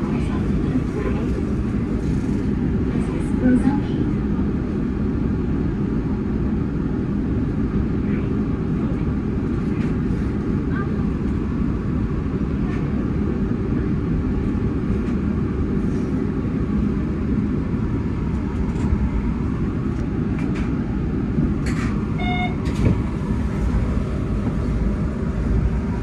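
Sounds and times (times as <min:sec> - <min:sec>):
train rumble in cab: 0:00.0 - 0:26.0
short beeps: 0:22.2 - 0:22.7.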